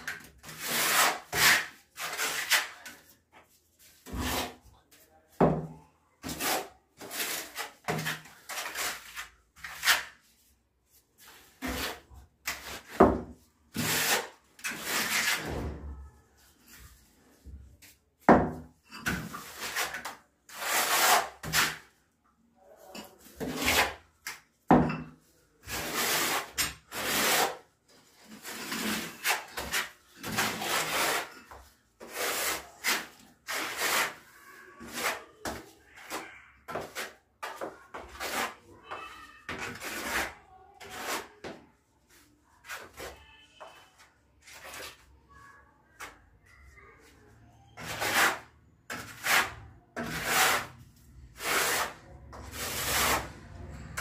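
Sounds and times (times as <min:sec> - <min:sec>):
trowel scraping mortar: 0:00.0 - 0:04.8, 0:06.2 - 0:10.5, 0:11.2 - 0:15.5, 0:18.8 - 0:22.0, 0:22.9 - 0:24.5, 0:25.6 - 0:41.6, 0:44.4 - 0:45.1, 0:47.7 - 0:54.0.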